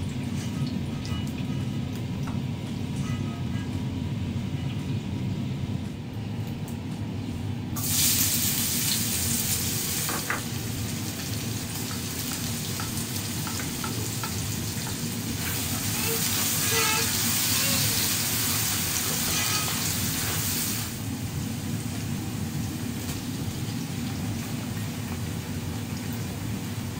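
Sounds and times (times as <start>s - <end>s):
onion sizzling in hot oil: 7.8s - 26.9s.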